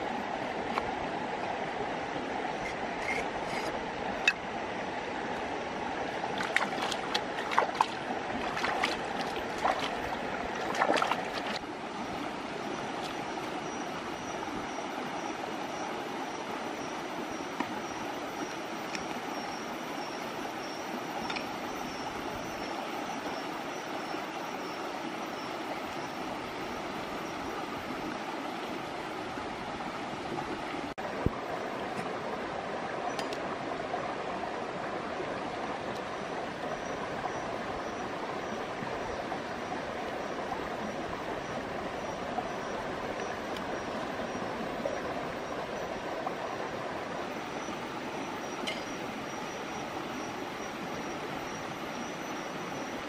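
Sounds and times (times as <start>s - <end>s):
rocky stream running: 0.0s - 53.0s
splashes and knife knocks: 10.6s - 11.6s.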